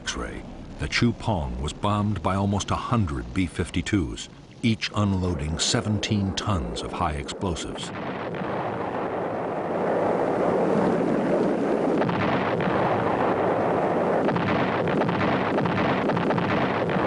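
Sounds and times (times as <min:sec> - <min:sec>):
bombs exploding with crackling: 0:07.8 - 0:17.0.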